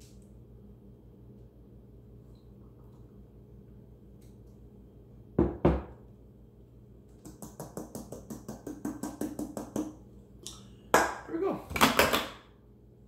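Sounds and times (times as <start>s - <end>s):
glass mug knocking on table: 5.4s - 6.0s.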